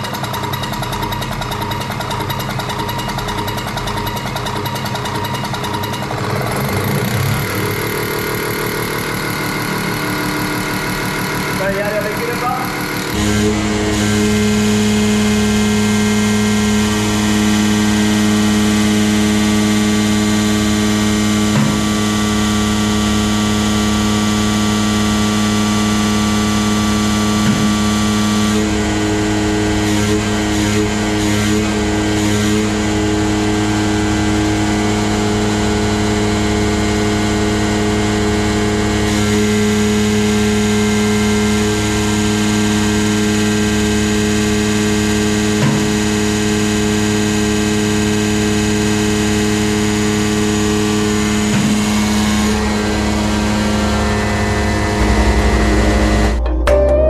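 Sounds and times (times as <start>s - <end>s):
machine clattering: 0.0s - 10.0s
machine droning: 0.0s - 57.0s.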